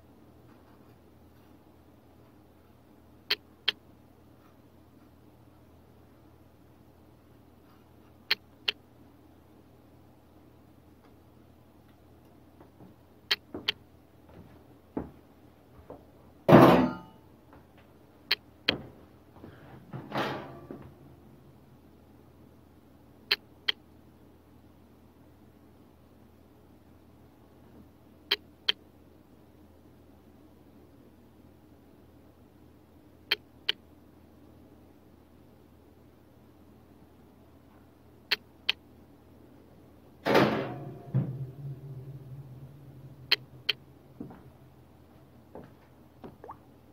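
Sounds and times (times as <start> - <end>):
oven door swinging shut: 20.0 - 20.7, 40.2 - 41.5
oven door clicks and clatter: 20.0 - 20.8.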